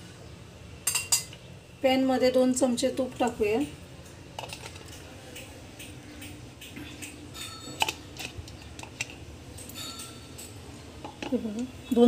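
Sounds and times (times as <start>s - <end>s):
metal spoon clinking on pan: 0.8s - 1.4s, 7.0s - 8.3s, 9.6s - 11.4s.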